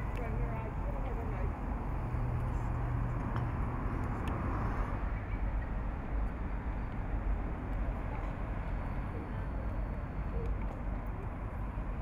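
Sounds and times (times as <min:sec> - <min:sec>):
city background noise: 0:00.0 - 0:12.0.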